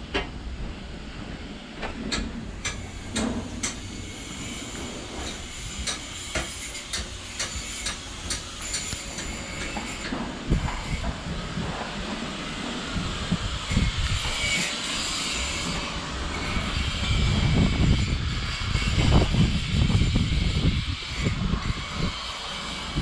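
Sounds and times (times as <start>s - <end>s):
sharp knocks and clanks: 1.8s - 11.2s.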